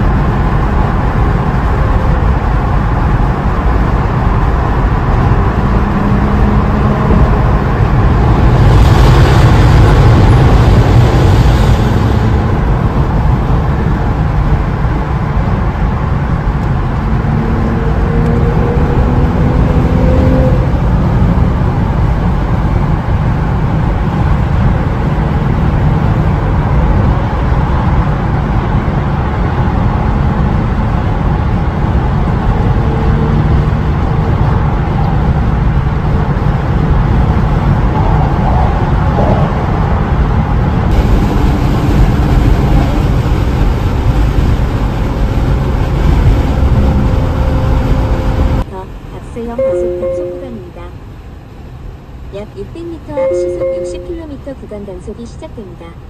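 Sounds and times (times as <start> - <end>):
tyre and wind road noise: 0.0 - 56.0
faint car engine note: 49.6 - 50.8, 53.2 - 54.2.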